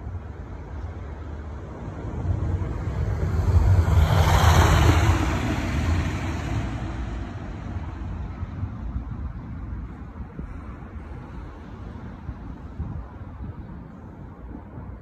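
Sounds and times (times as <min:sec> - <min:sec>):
car driving past: 0:01.9 - 0:08.2.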